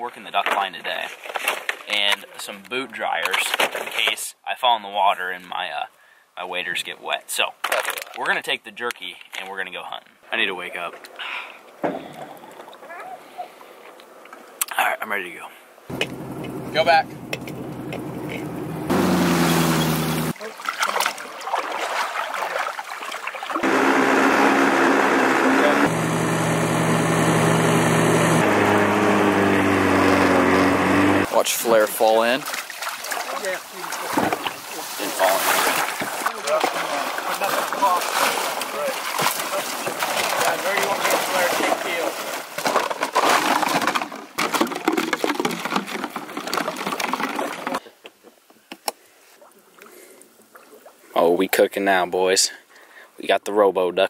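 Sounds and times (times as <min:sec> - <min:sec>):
outboard motor idling: 0:15.9 - 0:20.3, 0:23.6 - 0:31.3
water splashing: 0:17.4 - 0:24.8, 0:31.2 - 0:42.9
plastic decoys clattering: 0:42.6 - 0:47.8.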